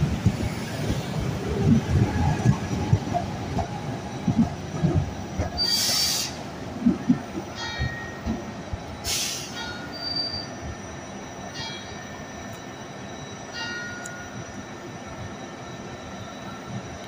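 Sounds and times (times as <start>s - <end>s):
noisy train rumble: 0.0s - 17.0s
train wheels squealing: 5.1s - 6.6s, 7.6s - 17.0s.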